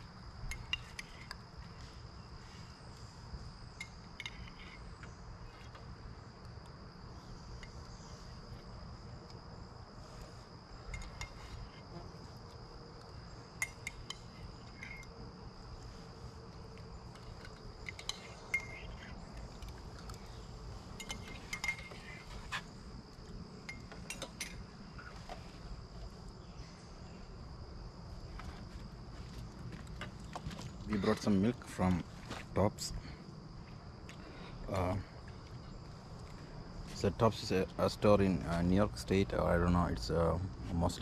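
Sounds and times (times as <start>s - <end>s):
high-pitched insect chorus: 0.0s - 41.0s
spoons clinking against bowls: 17.8s - 18.8s, 20.9s - 22.2s.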